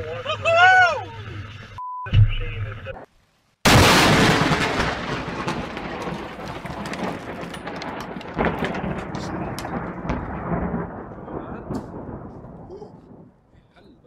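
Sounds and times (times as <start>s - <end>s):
heavy rain: 3.6s - 13.4s
thunder rumbling: 3.7s - 14.0s.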